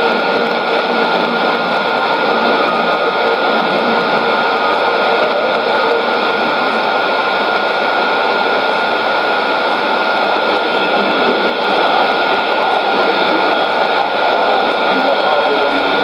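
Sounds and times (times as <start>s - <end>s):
shortwave radio static and hiss: 0.0s - 16.0s
steady radio whistle: 0.0s - 16.0s.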